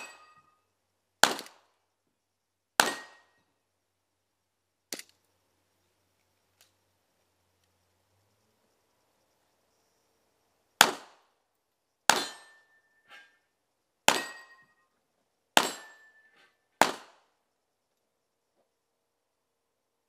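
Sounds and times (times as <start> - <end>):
faint metallic clink: 0.0 - 0.7, 12.2 - 13.6, 14.2 - 15.0, 15.7 - 16.7
metallic ring: 0.0 - 0.7, 12.2 - 15.0, 15.6 - 16.7
pistol shots: 1.2 - 1.7, 2.8 - 3.4, 10.8 - 11.3, 12.1 - 12.7, 14.1 - 14.7, 15.6 - 16.2, 16.8 - 17.3.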